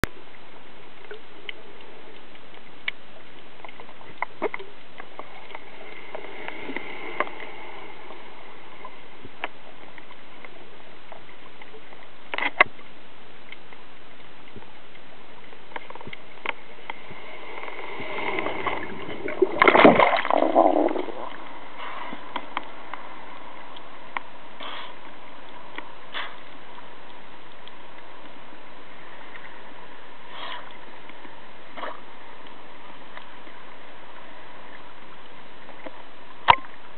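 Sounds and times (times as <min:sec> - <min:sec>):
faint clicks: 0:00.0 - 0:08.2, 0:08.8 - 0:28.4
water sloshing and splashing: 0:00.1 - 0:24.2
underwater hiss: 0:05.3 - 0:09.1, 0:16.6 - 0:22.4, 0:24.6 - 0:25.1, 0:26.1 - 0:26.6, 0:30.2 - 0:30.8.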